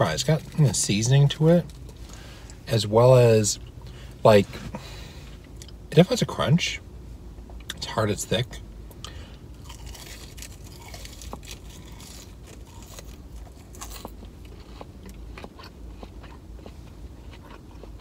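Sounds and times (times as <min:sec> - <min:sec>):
crunching french fries: 0:00.0 - 0:02.3, 0:09.0 - 0:18.0.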